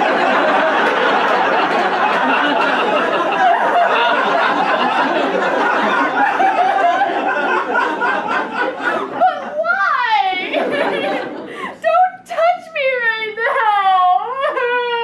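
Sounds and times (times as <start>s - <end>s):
audience laughing: 0.0s - 12.0s.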